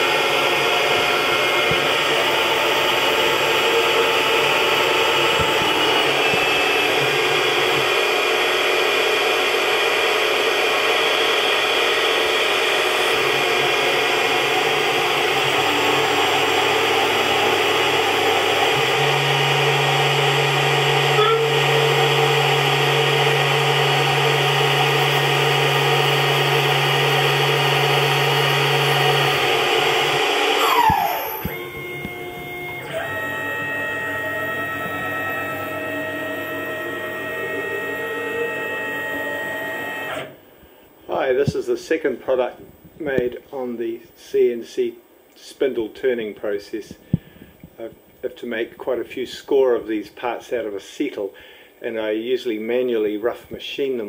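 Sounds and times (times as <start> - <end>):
low hum shifting pitch: 0.0 - 9.1, 13.0 - 40.3
machine whine and hiss: 0.0 - 43.4.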